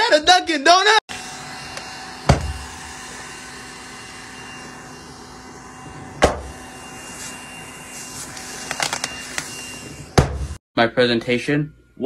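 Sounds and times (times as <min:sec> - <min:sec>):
steady whirring: 0:01.1 - 0:10.6
sharp thump: 0:02.3 - 0:02.6.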